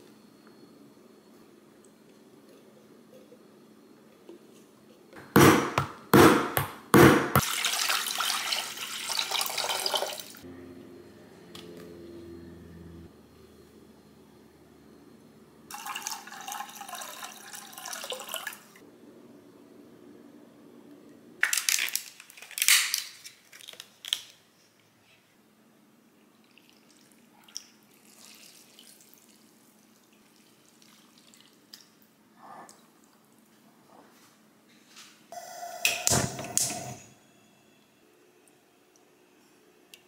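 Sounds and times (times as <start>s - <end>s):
liquid pouring into container: 7.4s - 10.4s, 15.7s - 18.7s, 27.9s - 31.6s.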